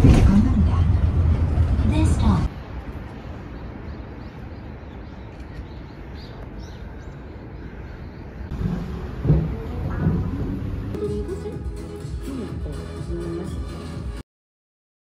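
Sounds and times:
steady low rumble: 0.0s - 5.3s, 5.9s - 11.8s
loud thumps: 8.5s - 10.9s.

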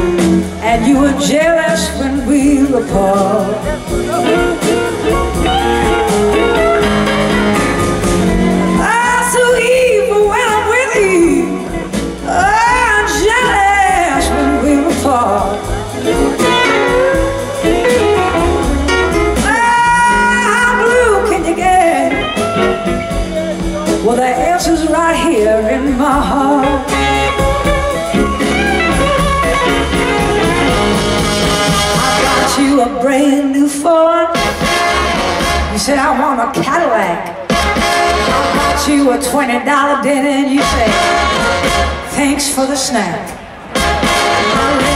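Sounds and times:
electric guitar: 0.0s - 33.5s
live blues band: 0.0s - 44.9s
woman singing: 0.2s - 6.9s, 8.3s - 18.0s, 19.4s - 23.2s, 23.9s - 27.8s, 31.7s - 43.4s, 44.4s - 44.9s.

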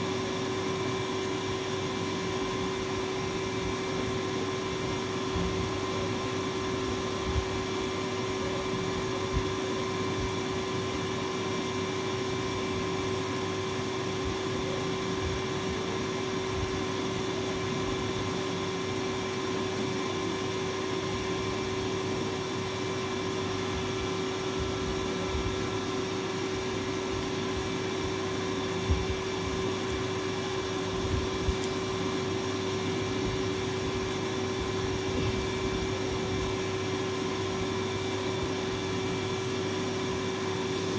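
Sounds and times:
machine hum with hiss: 0.0s - 40.9s.

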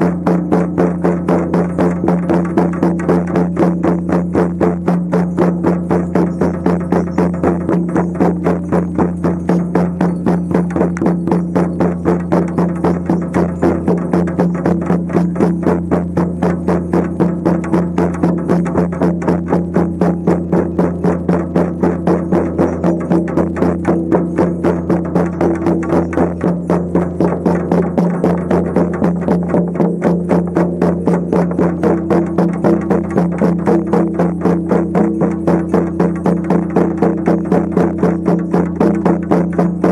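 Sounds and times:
frame drums beating: 0.0s - 39.9s.

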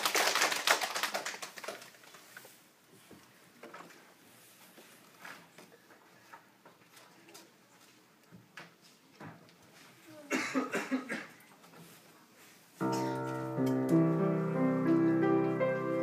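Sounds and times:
upright piano playing: 12.8s - 16.0s.

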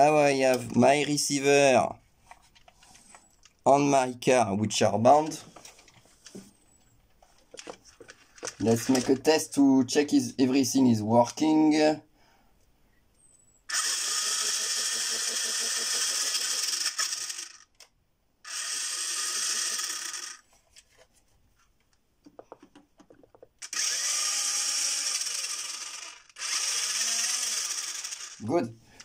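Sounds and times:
electric motors whirring: 13.7s - 17.6s, 18.5s - 20.4s, 23.6s - 28.4s.

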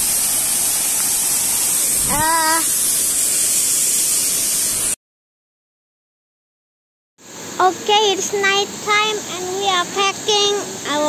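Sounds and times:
waterfall rushing: 0.0s - 4.9s, 7.3s - 11.0s
person's short vocal sound: 2.0s - 2.7s.

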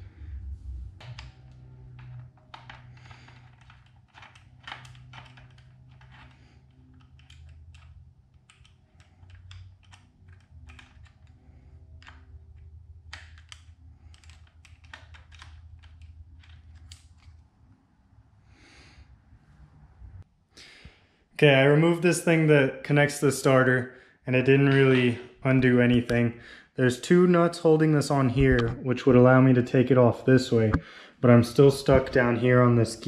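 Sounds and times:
steady low hum: 0.0s - 20.2s.

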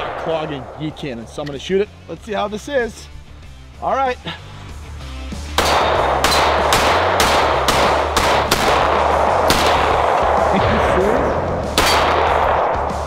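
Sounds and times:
pistol shots: 5.5s - 10.9s, 11.6s - 13.0s.

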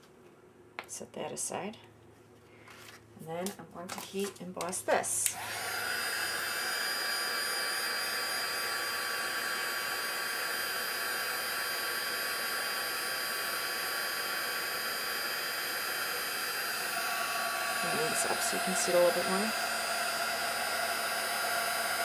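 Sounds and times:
heat gun blowing hot air: 5.2s - 22.0s.

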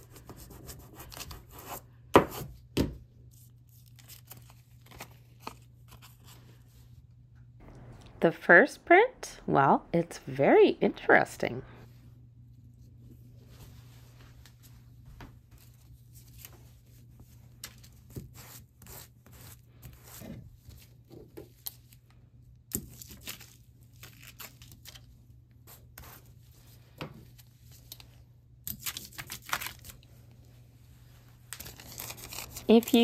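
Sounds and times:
faint steady hum: 5.4s - 17.8s
aluminium foil crinkling: 22.8s - 25.1s, 28.7s - 30.1s, 31.5s - 33.0s.

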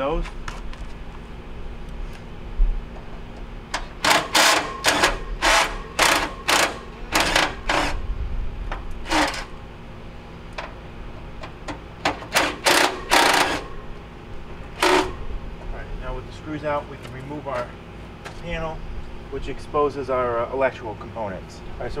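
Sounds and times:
cordless driver spinning screws: 4.0s - 8.0s, 12.3s - 13.6s, 14.8s - 15.1s.

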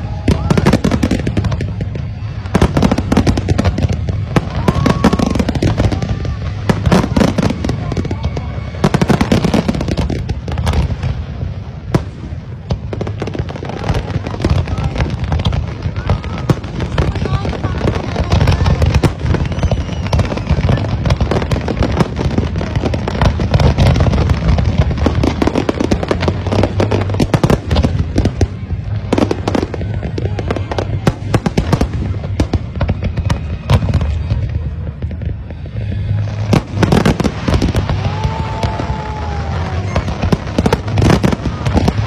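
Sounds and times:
fireworks bangs and crackles: 0.0s - 42.0s.

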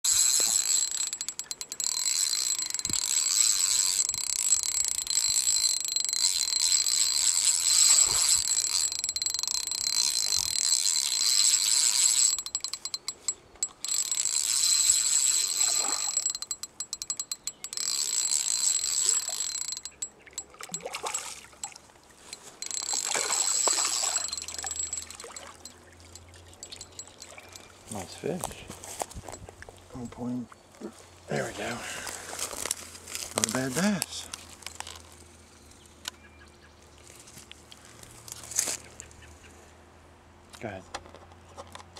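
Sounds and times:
fishing reel whirring: 0.0s - 20.8s, 22.3s - 28.0s.

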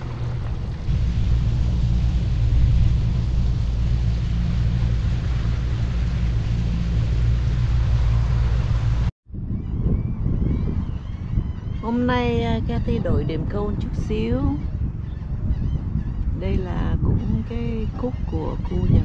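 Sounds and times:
outboard motor drone: 0.0s - 9.1s
wind and water rushing: 0.0s - 19.0s.

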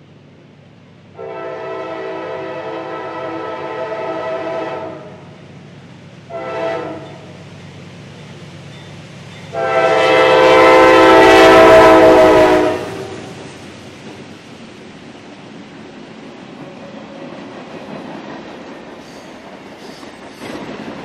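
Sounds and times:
train rumbling: 0.0s - 21.0s
locomotive air horn blasts: 1.2s - 5.2s, 6.3s - 7.3s, 9.5s - 13.4s.

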